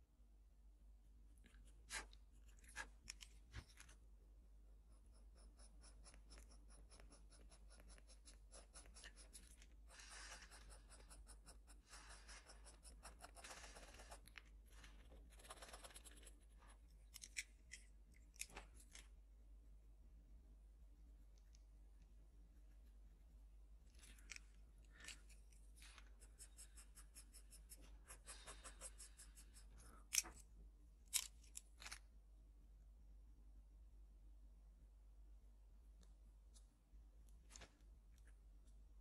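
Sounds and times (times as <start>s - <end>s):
pencil scratching on paper: 4.8s - 16.8s, 25.7s - 30.2s.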